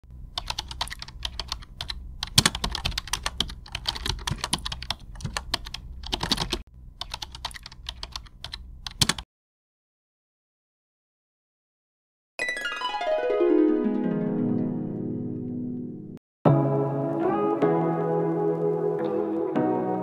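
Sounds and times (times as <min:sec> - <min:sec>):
computer keyboard typing: 0:00.4 - 0:09.2.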